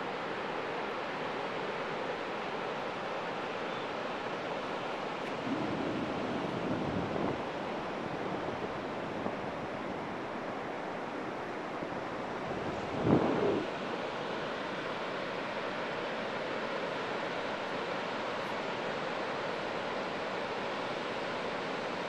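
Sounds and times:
wind on microphone: 5.3s - 9.5s, 12.5s - 13.8s.

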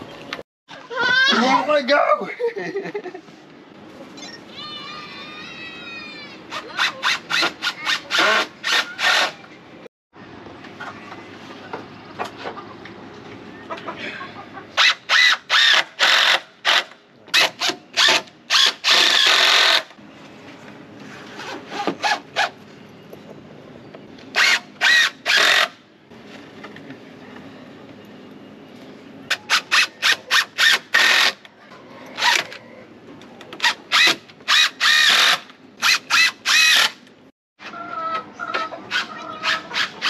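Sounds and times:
power driver driving screws: 24.4s - 25.8s, 33.6s - 37.0s.

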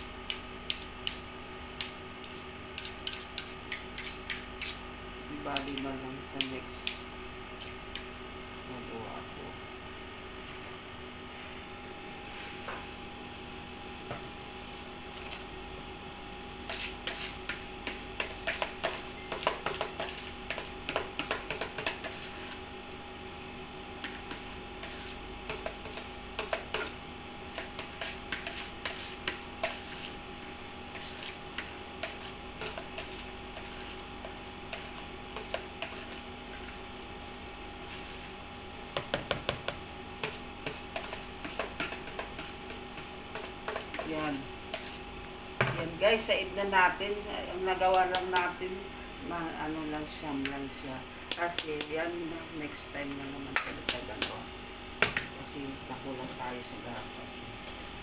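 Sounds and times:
electrical hum: 0.0s - 58.0s
spoon scraping plastic bowl: 16.6s - 22.6s, 24.0s - 38.3s, 40.2s - 45.0s.

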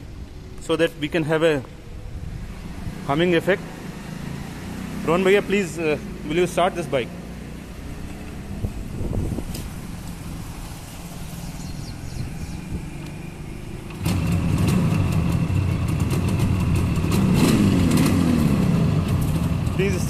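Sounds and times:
motorcycle engine revving: 2.6s - 20.0s
motorcycle engine kick-starting: 13.8s - 18.4s.

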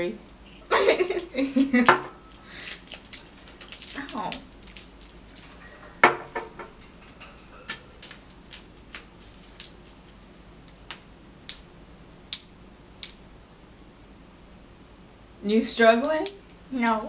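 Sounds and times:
plastic wrappers crinkling: 1.6s - 6.0s, 7.6s - 11.7s.

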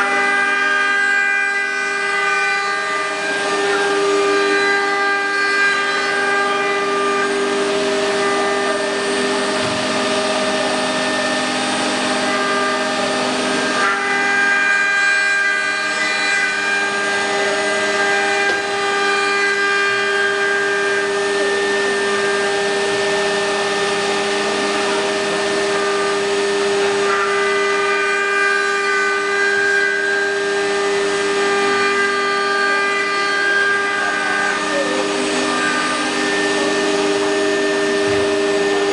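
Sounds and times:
wood router whining: 0.0s - 38.9s.

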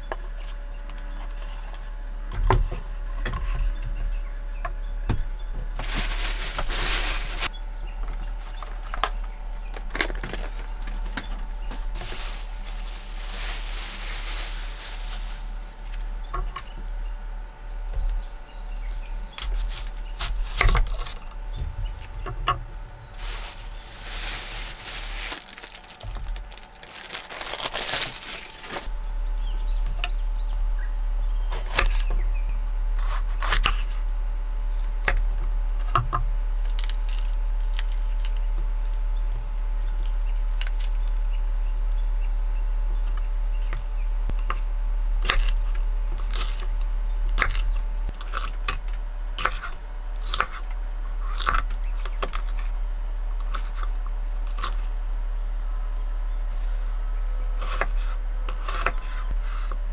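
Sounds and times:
steady low hum: 0.0s - 59.9s
plastic bag crinkling: 5.8s - 7.5s, 11.8s - 16.2s, 22.7s - 28.9s.

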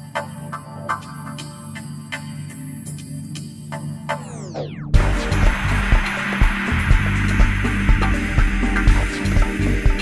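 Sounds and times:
electronic synthesizer music: 4.1s - 10.0s
downward pitch sweep: 4.2s - 8.4s.

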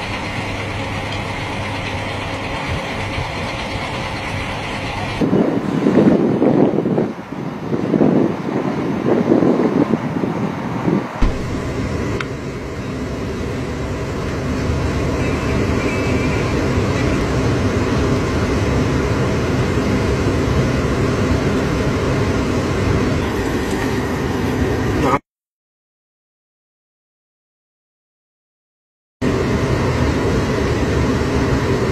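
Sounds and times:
truck engine running: 0.0s - 6.2s, 11.1s - 25.2s.

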